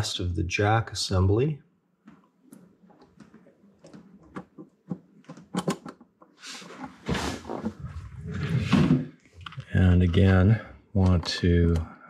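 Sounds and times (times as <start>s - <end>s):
hardware clicking and tapping: 2.0s - 6.4s.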